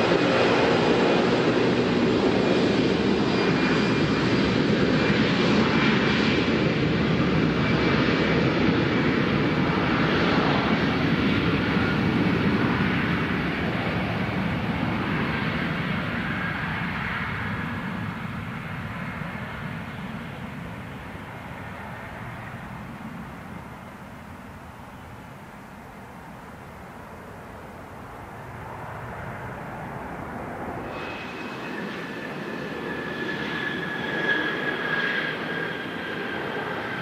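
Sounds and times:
jet engines rushing: 0.0s - 25.2s, 26.7s - 37.0s
faint high whine: 8.8s - 37.0s.

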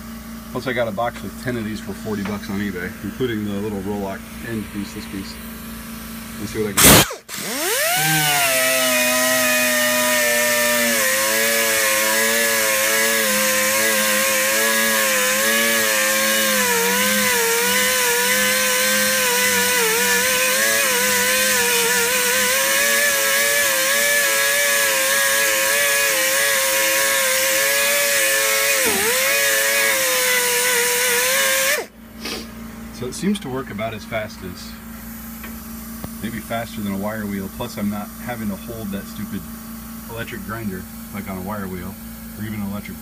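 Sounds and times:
air die grinder whining: 6.4s - 32.4s
bristle disc scrubbing metal: 8.3s - 31.8s.

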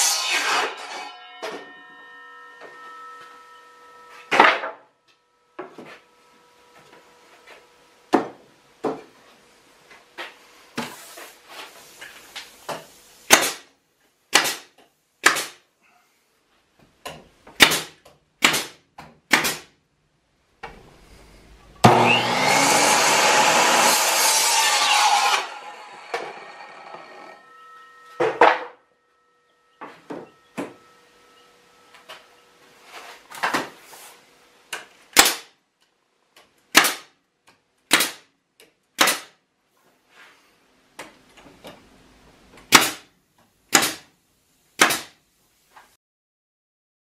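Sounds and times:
circular saw cutting board: 0.0s - 7.8s, 20.6s - 34.2s.

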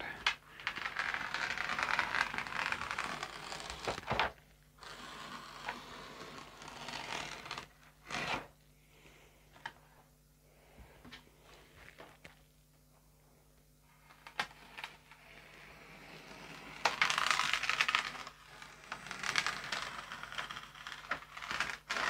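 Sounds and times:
knife scoring wood veneer: 4.8s - 8.5s.

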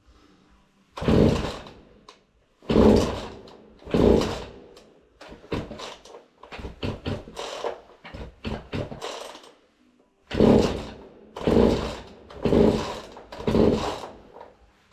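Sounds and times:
chainsaw starter cord pulled: 1.0s - 1.8s, 2.7s - 9.5s, 10.3s - 14.5s.

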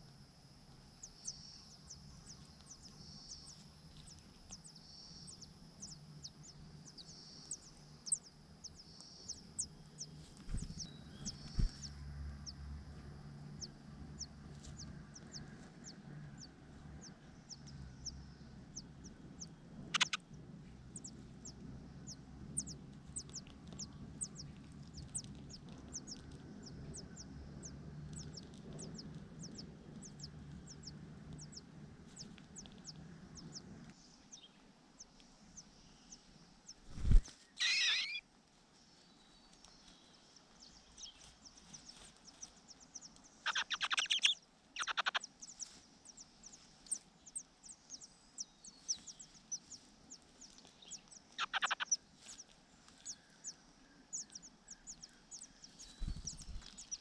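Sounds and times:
nestlings begging calls: 6.9s - 12.6s, 13.6s - 20.2s, 20.9s - 33.6s, 37.0s - 38.2s, 41.9s - 57.0s.

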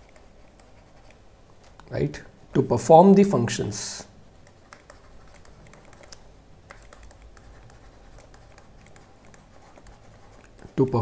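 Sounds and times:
stylus clicking on pen tablet: 0.0s - 1.2s, 4.4s - 10.8s.

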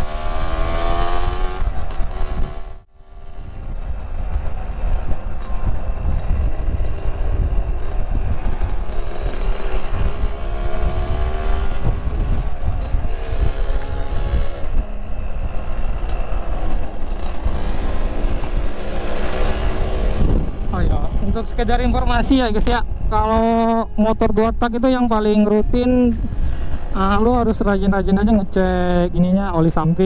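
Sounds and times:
motorcycle engine revving: 0.0s - 29.2s
wind rumble on microphone: 0.0s - 30.0s.

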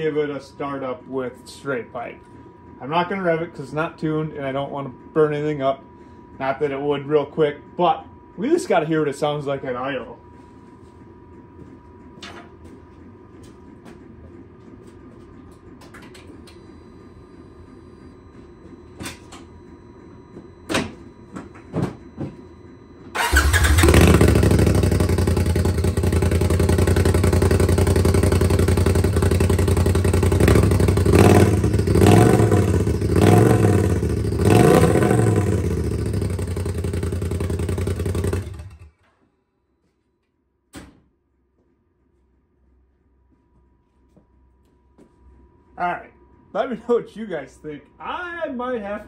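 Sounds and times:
engine starting and idling loud: 23.1s - 39.0s.

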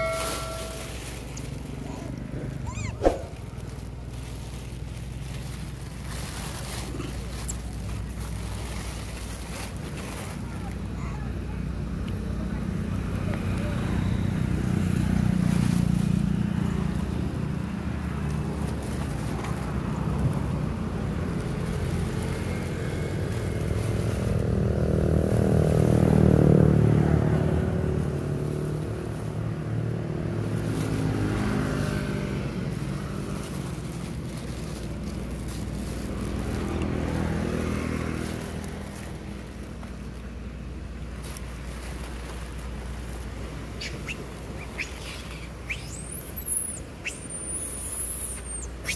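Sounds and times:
vehicle passing: 0.0s - 7.4s, 11.9s - 40.3s
motor vehicle engines running: 0.0s - 48.9s.

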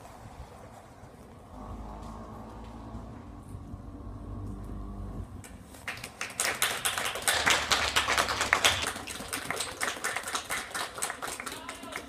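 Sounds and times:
people clapping: 5.4s - 12.0s.

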